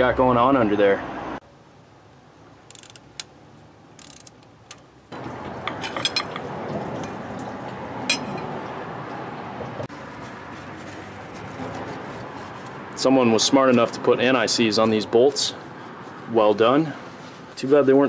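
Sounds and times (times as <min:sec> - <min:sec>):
ratchet clicking: 0:02.7 - 0:03.3, 0:04.0 - 0:04.8.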